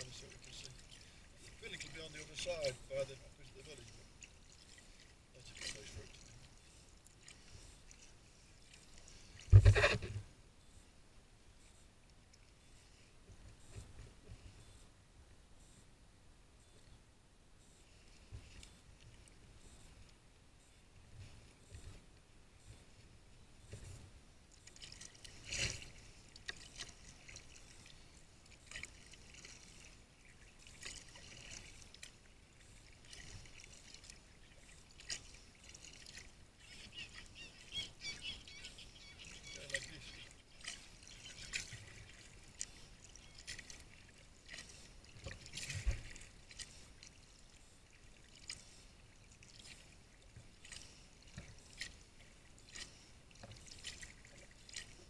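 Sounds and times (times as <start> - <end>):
paddle splashing in water: 0.0 - 10.3, 24.6 - 55.0
thump: 9.5 - 10.2.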